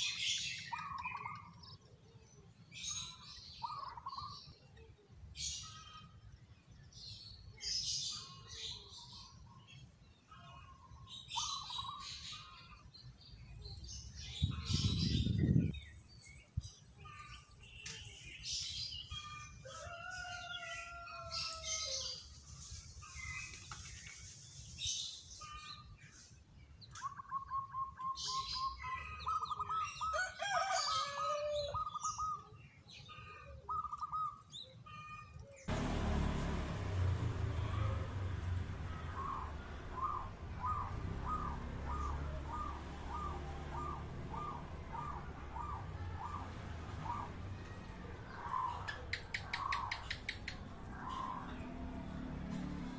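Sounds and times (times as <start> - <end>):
small birds chirping: 0.0 - 52.9
dove cooing: 39.0 - 47.4.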